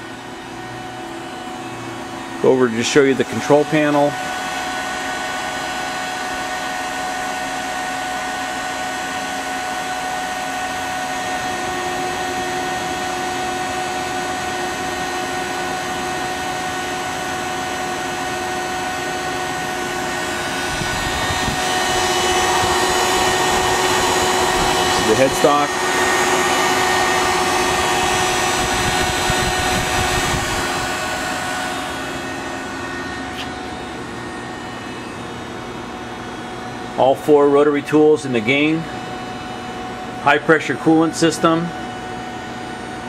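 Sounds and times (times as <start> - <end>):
lathe motors whirring hum: 0.0 - 43.0
steady machine tones: 10.9 - 42.9.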